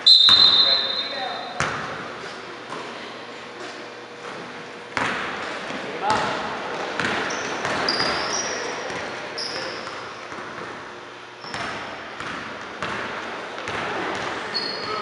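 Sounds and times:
sneaker squeaks: 0:00.0 - 0:10.7, 0:11.4 - 0:13.0, 0:13.6 - 0:15.0.

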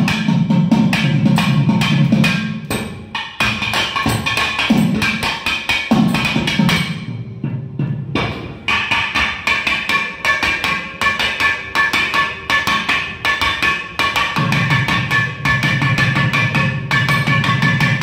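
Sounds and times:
fast drumming: 0:00.0 - 0:07.3.

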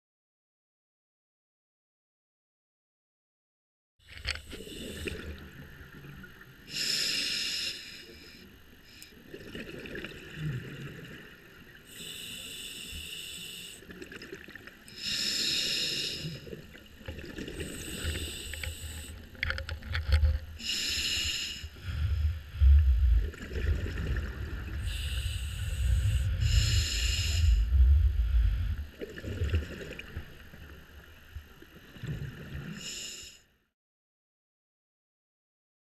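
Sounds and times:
low rumble of water: 0:04.0 - 0:33.7
steady hiss: 0:11.9 - 0:13.8, 0:14.9 - 0:16.5, 0:17.6 - 0:19.3, 0:20.6 - 0:23.4, 0:24.3 - 0:28.9
exhaled bubbles rushing: 0:21.8 - 0:30.2.

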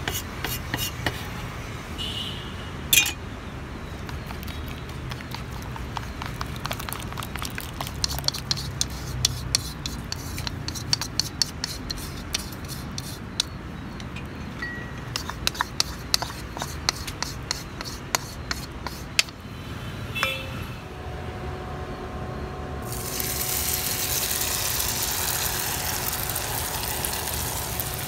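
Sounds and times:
batter scraped and poured: 0:04.1 - 0:13.4, 0:15.2 - 0:19.1, 0:22.9 - 0:28.0.

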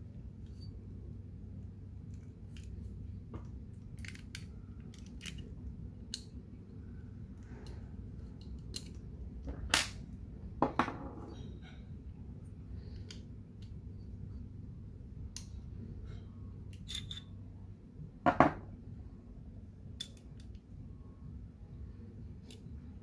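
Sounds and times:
steady low hum: 0:00.0 - 0:23.0
small gun parts clicking: 0:03.8 - 0:05.5, 0:08.4 - 0:09.0.

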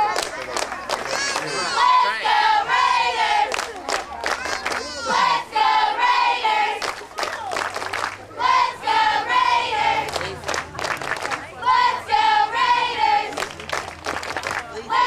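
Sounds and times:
cheerleaders chanting in unison: 0:01.4 - 0:03.6, 0:04.3 - 0:07.4, 0:08.2 - 0:10.4, 0:11.5 - 0:13.4, 0:14.7 - 0:15.0
sharp hand claps: 0:13.3 - 0:14.7.

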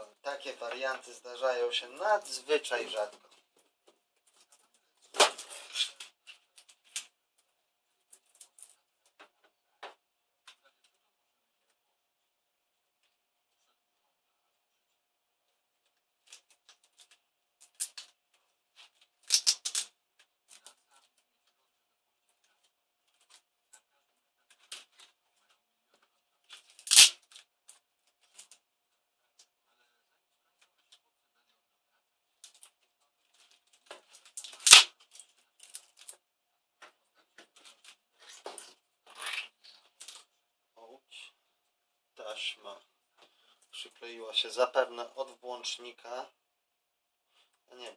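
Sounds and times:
plastic and metal clicks and snaps: 0:19.2 - 0:19.9, 0:26.5 - 0:28.6, 0:33.9 - 0:36.2
loud sharp crack: 0:26.9 - 0:27.2, 0:34.6 - 0:34.9.

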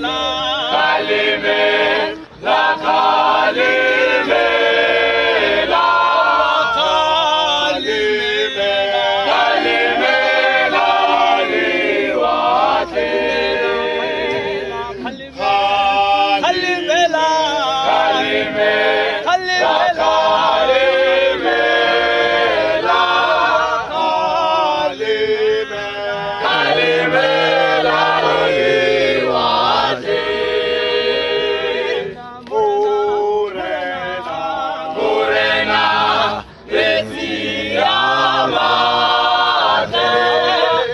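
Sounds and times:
male a cappella choir singing: 0:00.0 - 0:40.9.

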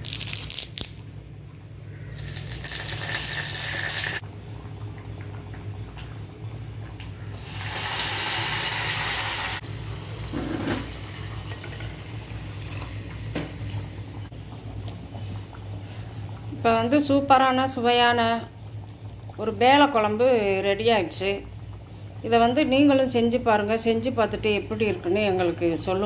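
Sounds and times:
leaves sizzling in hot oil: 0:02.1 - 0:04.2, 0:07.4 - 0:13.5.

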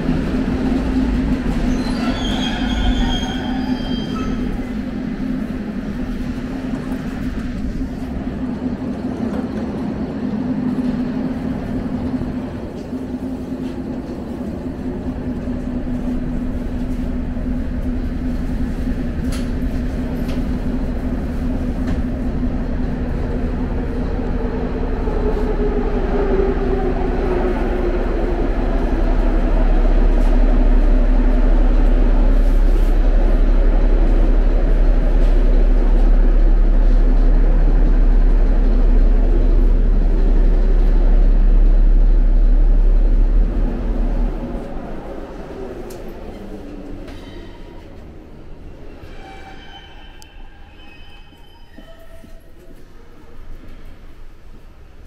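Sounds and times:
train electric hum and rumble: 0:00.0 - 0:55.0.

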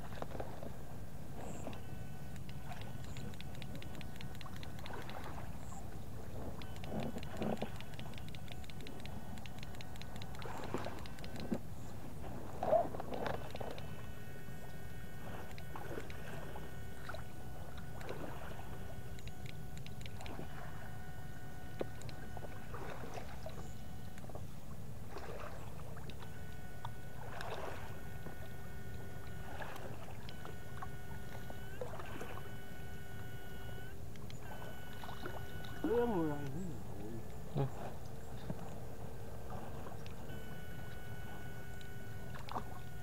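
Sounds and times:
electrofishing unit whine: 0:00.0 - 0:43.0
water splashing and sloshing: 0:00.0 - 0:43.0.

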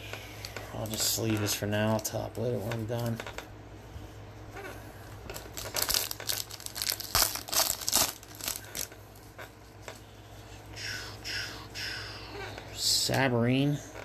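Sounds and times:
foil wrapper crinkling: 0:05.3 - 0:09.1.

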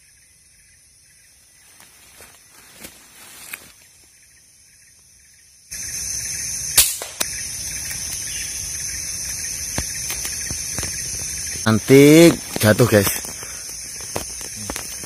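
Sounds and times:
high-pitched insect drone: 0:00.0 - 0:15.0
air rifle shot: 0:06.8 - 0:07.3.

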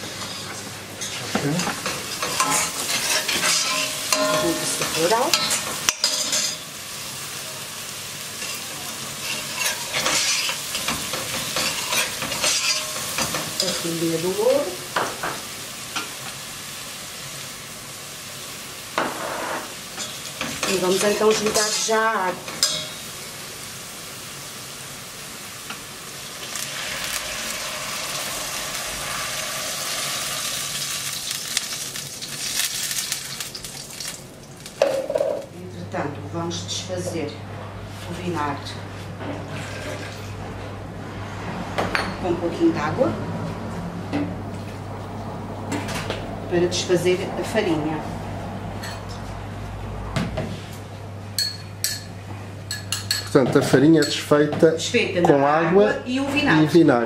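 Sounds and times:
food sizzling: 0:00.0 - 0:35.6
metal spoon scraping a pot: 0:02.2 - 0:06.6, 0:09.2 - 0:11.0, 0:11.6 - 0:13.7
water pouring and hissing: 0:26.3 - 0:34.2.

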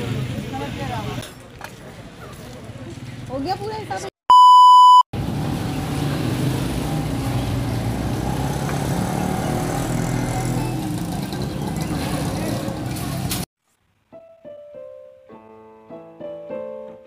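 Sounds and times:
street noise: 0:00.0 - 0:13.5
loud beep tone: 0:04.3 - 0:05.1.

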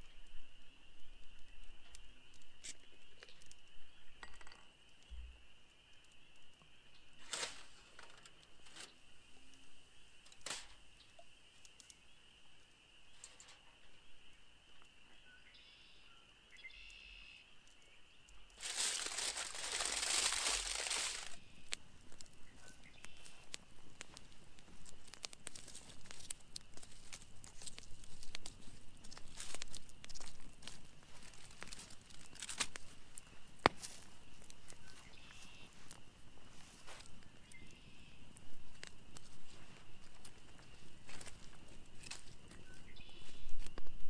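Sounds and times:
campfire crackling: 0:00.0 - 0:15.0, 0:17.5 - 0:44.0
loud crinkling rustle: 0:07.2 - 0:09.0, 0:18.5 - 0:37.9.

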